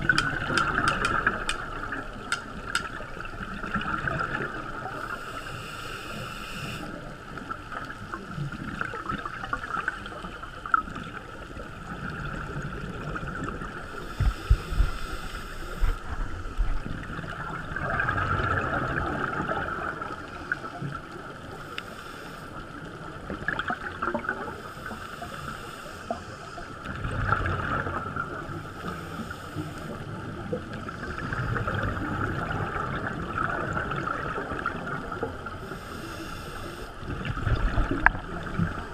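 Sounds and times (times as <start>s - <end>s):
muffled underwater hiss: 0.0s - 38.9s
divers exhaling bubbles: 16.7s - 20.3s, 26.9s - 28.6s, 30.6s - 35.5s, 37.0s - 38.9s.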